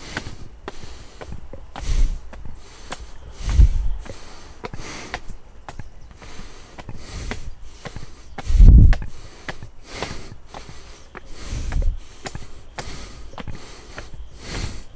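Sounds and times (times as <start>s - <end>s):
footsteps scuffing: 0.0s - 14.9s
heavy breathing: 0.0s - 14.9s
low rumble on microphone: 1.3s - 2.6s, 3.2s - 4.2s, 7.0s - 9.2s, 11.4s - 12.0s.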